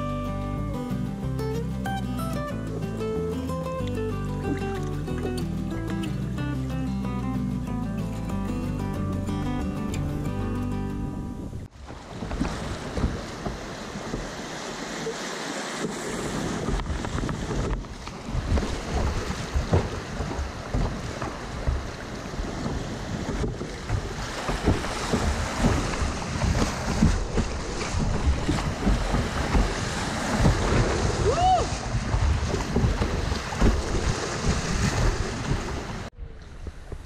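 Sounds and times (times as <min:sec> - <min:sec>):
wind buffeting microphone: 0:09.5 - 0:15.2, 0:15.8 - 0:37.0
river rapids splashing: 0:11.7 - 0:36.1.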